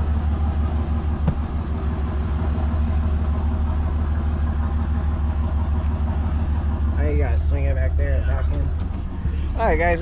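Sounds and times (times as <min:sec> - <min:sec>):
truck engine running: 0:00.0 - 0:10.0.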